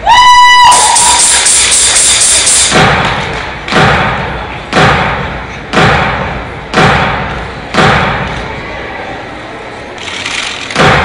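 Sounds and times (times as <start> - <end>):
booming impact hits with echo: 2.4 - 8.4, 10.8 - 11.0.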